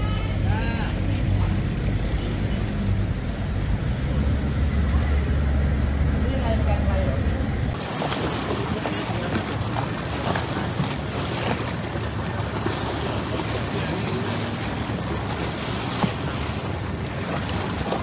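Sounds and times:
faint voices: 4.7 - 18.0
water rushing: 7.7 - 18.0.

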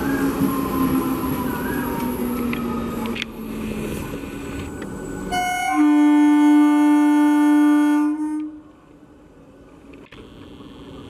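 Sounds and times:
train running noise: 0.0 - 11.0
train air horn: 5.3 - 8.8.

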